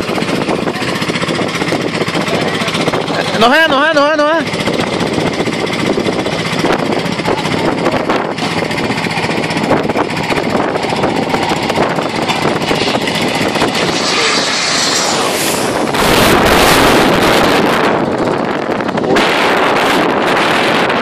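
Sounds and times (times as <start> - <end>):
jet engine rush: 0.0 - 20.8.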